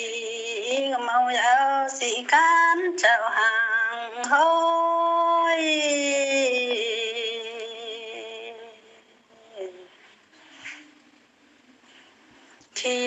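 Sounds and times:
person singing slow melody: 0:00.0 - 0:10.0, 0:12.7 - 0:13.0.

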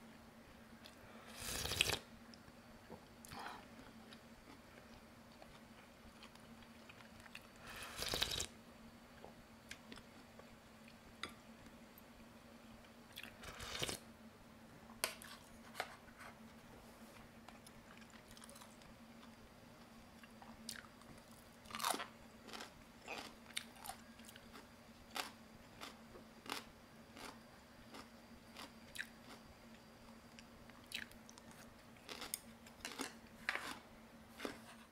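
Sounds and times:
faint steady hum: 0:00.0 - 0:34.9
person chewing food: 0:03.2 - 0:08.5, 0:20.2 - 0:29.5, 0:30.4 - 0:34.7.

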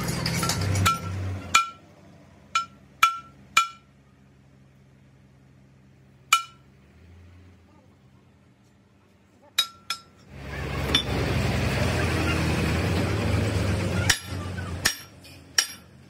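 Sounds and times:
metal-on-metal strikes: 0:00.5 - 0:01.9, 0:02.5 - 0:03.9, 0:06.3 - 0:06.7
loud steady running noise: 0:09.6 - 0:16.0.

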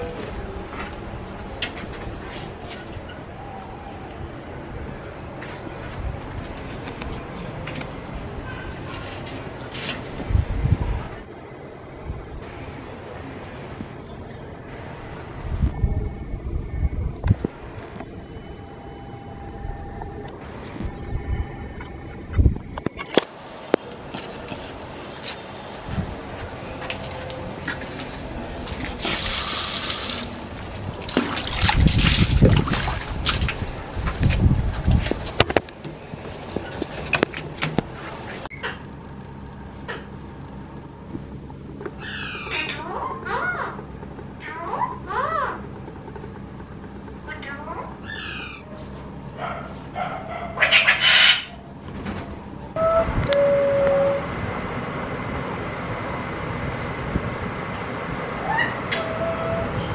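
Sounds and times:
brief held tone: 0:17.9 - 0:23.2, 0:52.8 - 0:54.3
water pouring onto tiled floor: 0:28.8 - 0:33.7
parakeet screeching calls: 0:42.0 - 0:43.7, 0:48.0 - 0:48.7, 0:50.6 - 0:51.6.

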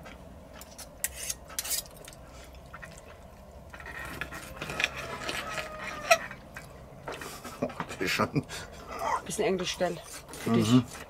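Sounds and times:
knife scraping a plate: 0:00.8 - 0:01.9.

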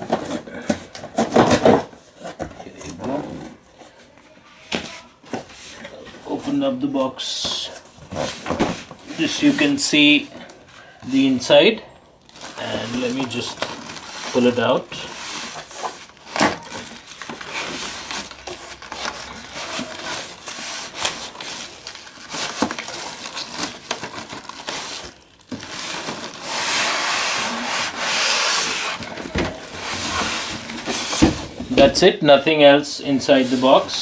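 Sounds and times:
packaging rustling and scraping: 0:00.0 - 0:04.0, 0:04.6 - 0:10.9, 0:12.3 - 0:34.0
steady rubbing: 0:25.8 - 0:29.1, 0:33.2 - 0:34.0.

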